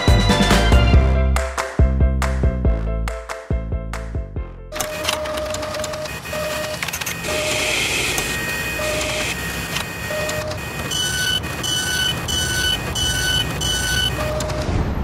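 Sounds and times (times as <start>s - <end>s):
alternating high-and-low electronic beeping: 4.8s - 14.7s
mechanical whirr with clicks: 9.0s - 10.6s.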